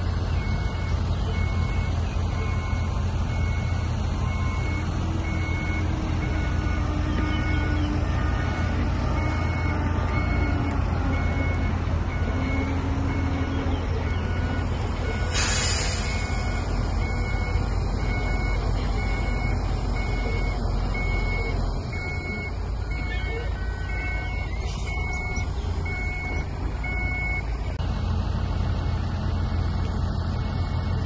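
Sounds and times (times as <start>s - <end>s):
dump truck engine rumble: 0.0s - 31.0s
reversing alarm beeping: 0.4s - 27.8s
air hiss: 15.3s - 16.3s.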